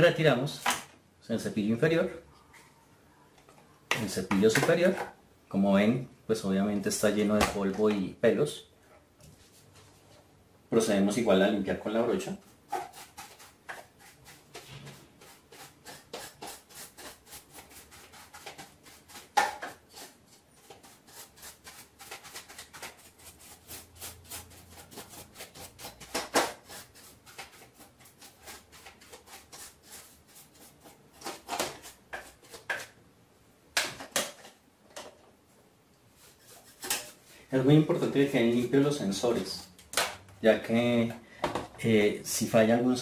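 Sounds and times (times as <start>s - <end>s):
paintbrush scrubbing plastic: 12.4s - 32.9s, 36.1s - 39.6s.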